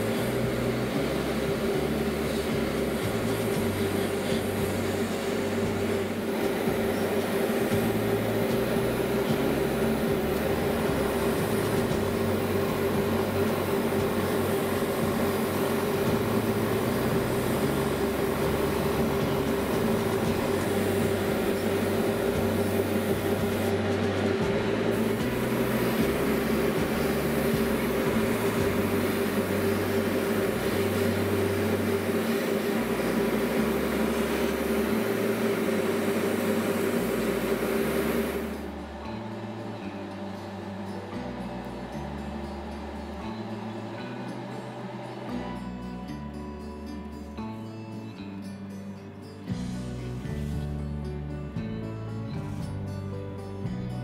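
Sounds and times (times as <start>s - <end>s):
airbrush hissing: 0.0s - 38.8s, 49.6s - 50.9s
compressor humming: 0.0s - 54.0s.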